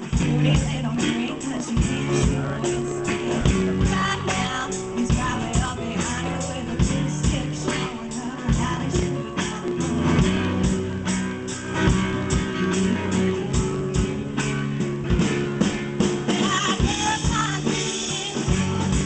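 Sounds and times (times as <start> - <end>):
drum kit beat: 0.0 - 19.0
guitar: 0.0 - 19.0
live rock band playing: 0.0 - 19.0.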